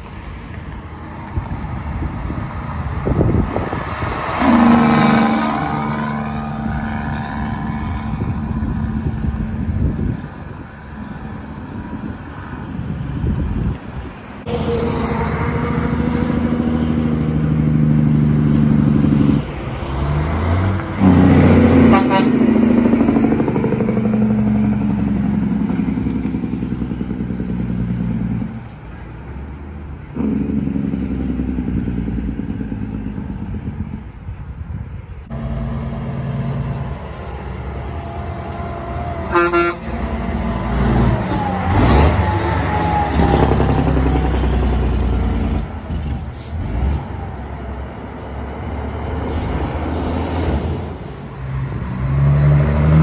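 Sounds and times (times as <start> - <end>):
truck engine brakes: 40.9 - 47.3.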